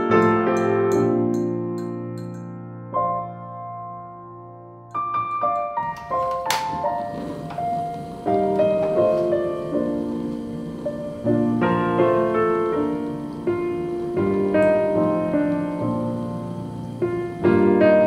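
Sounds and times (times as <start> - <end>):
gentle piano music: 0.0 - 18.0.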